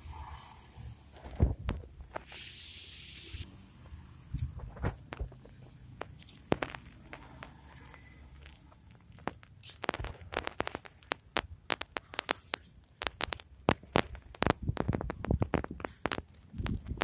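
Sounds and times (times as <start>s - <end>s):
footsteps on paved path: 3.9s - 17.0s.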